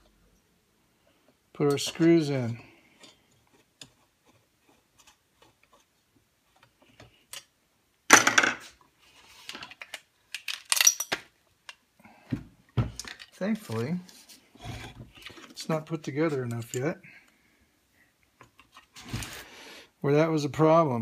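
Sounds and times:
metallic clatter of dropped screw: 9.8s - 11.2s.

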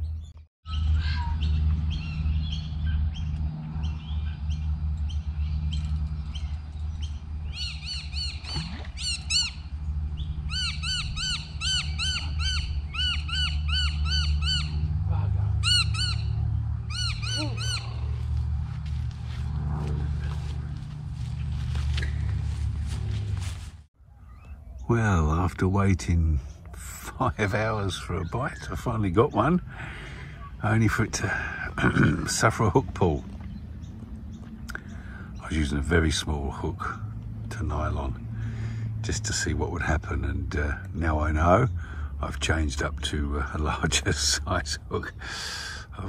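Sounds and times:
low rumble: 0.8s - 23.9s
bird calling harshly: 7.4s - 18.4s.

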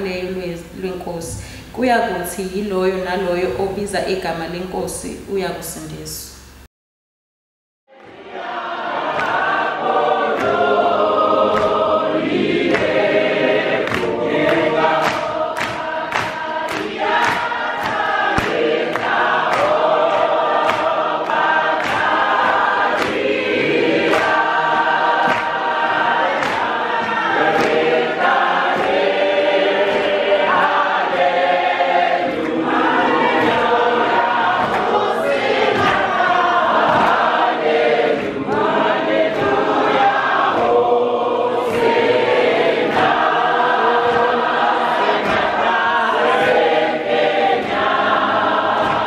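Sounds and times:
congregation singing a hymn: 8.0s - 49.0s
sharp hand claps: 9.1s - 13.1s, 13.8s - 31.6s, 32.2s - 40.8s, 41.6s - 49.0s.

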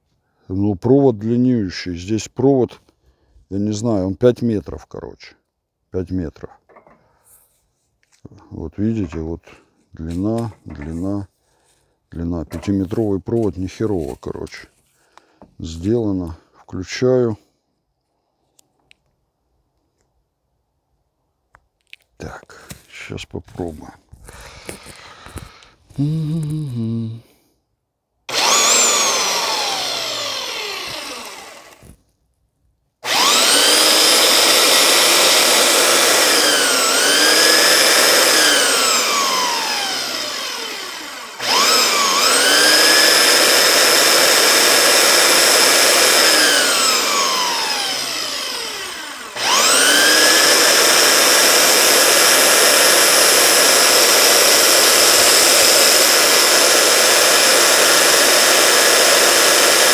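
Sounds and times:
belt sander motor whine: 28.3s - 32.0s, 33.0s - 59.9s.

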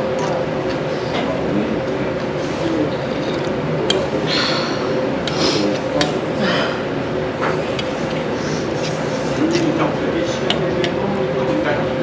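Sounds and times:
murmur of voices: 0.0s - 12.0s
utensils clinking against bowl: 2.8s - 4.1s.

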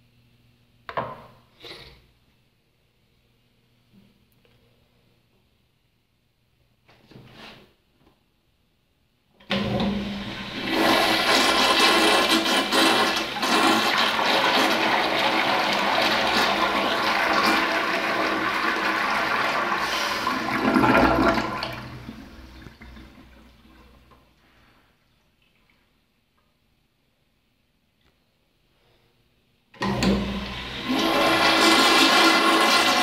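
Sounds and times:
toilet flushing: 9.4s - 24.6s, 29.8s - 33.0s.

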